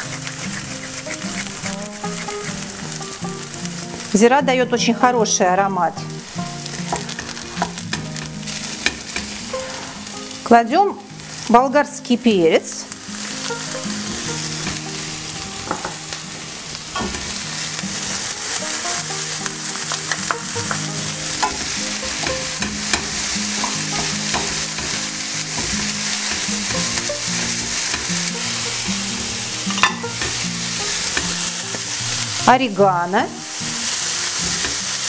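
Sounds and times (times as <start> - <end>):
vegetables sizzling in oil: 0.0 - 35.0
wooden spatula scraping pan: 14.0 - 32.4.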